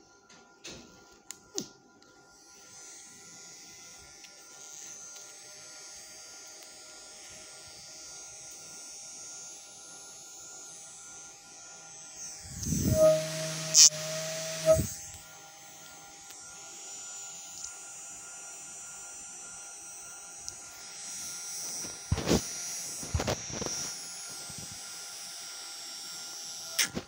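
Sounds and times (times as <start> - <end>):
small motor whining: 2.2 - 27.0.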